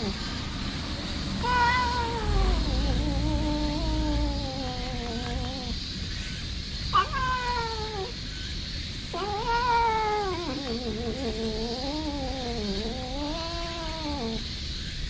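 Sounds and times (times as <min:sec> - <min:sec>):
cat meowing: 0:00.0 - 0:00.2, 0:01.4 - 0:05.8, 0:06.9 - 0:08.2, 0:09.1 - 0:14.4.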